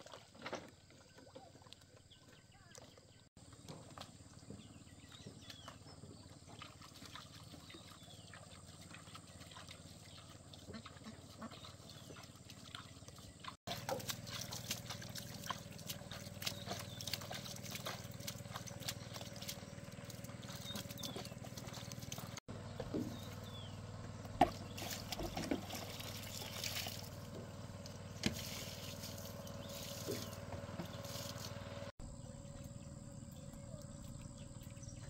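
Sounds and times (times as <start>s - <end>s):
liquid sloshing in a basin: 5.2s - 23.4s, 24.4s - 31.9s
splashes and drips on leaves: 13.7s - 22.4s, 24.6s - 31.9s.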